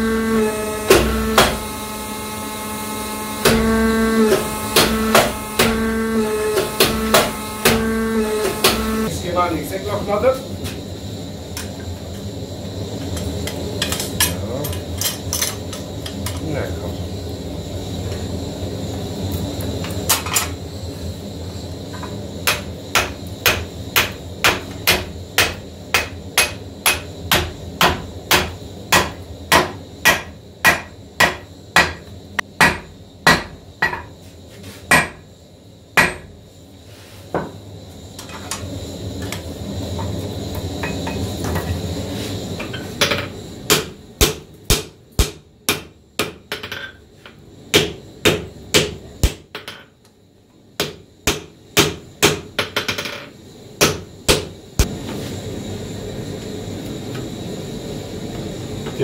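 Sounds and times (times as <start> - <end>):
steady low hum: 0.0 - 46.5
hammer striking hot steel: 0.9 - 1.7, 3.4 - 8.9, 22.4 - 34.1, 34.9 - 35.2, 36.0 - 36.3, 43.0 - 46.6, 47.7 - 49.8, 50.8 - 52.5, 53.8 - 55.0.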